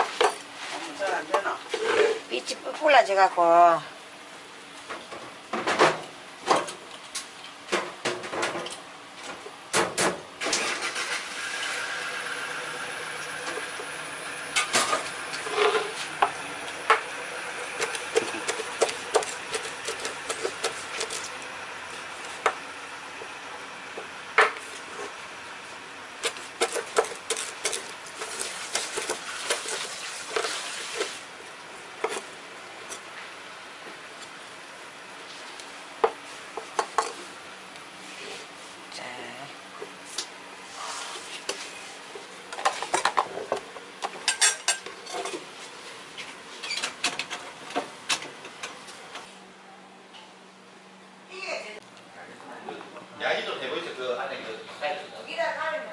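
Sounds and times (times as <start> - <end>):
engine-like drone: 10.4 - 29.1
knife chopping on wooden board: 17.8 - 21.3, 26.2 - 27.9.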